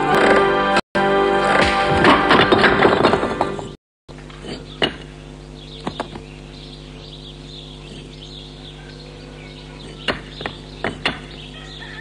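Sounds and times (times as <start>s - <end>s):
bricks knocking: 1.6s - 3.7s, 9.8s - 11.4s
birds chirping: 3.4s - 12.0s.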